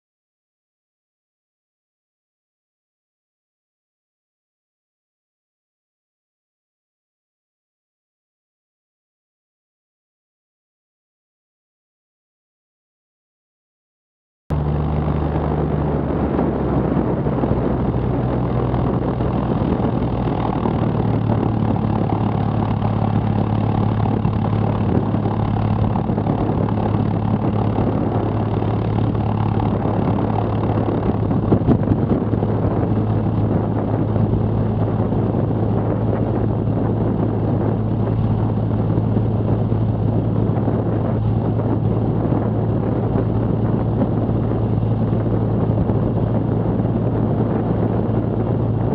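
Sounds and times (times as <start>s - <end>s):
propeller plane engine running: 14.5s - 48.9s.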